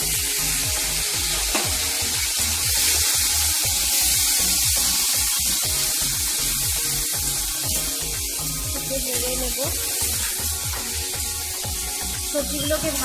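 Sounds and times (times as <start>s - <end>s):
background music with steady beat: 0.0s - 13.0s
vegetables sizzling in hot oil: 0.0s - 13.0s.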